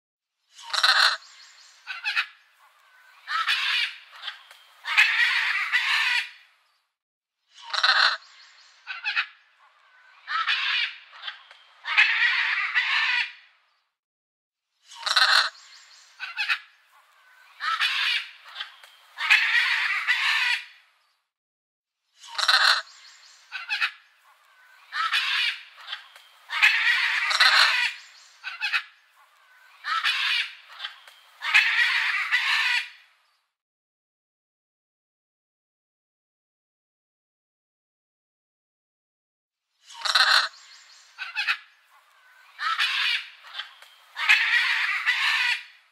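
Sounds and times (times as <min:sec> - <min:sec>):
macaws squawking: 0:00.6 - 0:06.4, 0:07.6 - 0:13.4, 0:15.0 - 0:20.8, 0:22.3 - 0:33.0, 0:39.9 - 0:45.8.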